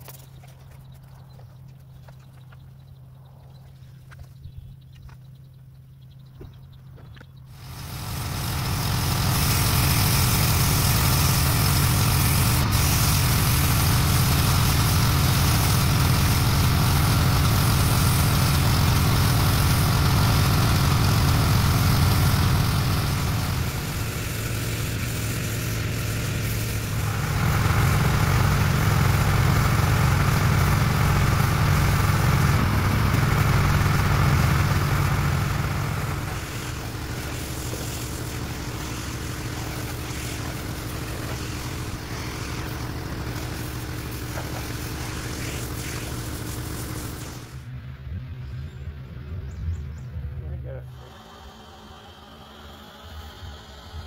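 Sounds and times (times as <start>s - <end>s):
pressure washer engine running: 7.5s - 47.7s, 50.9s - 54.0s
water spray hissing: 7.6s - 47.6s.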